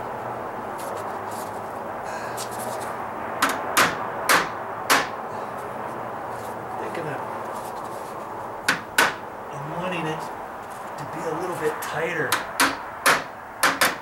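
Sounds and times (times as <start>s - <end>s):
hammer tapping metal: 12.3s - 14.0s.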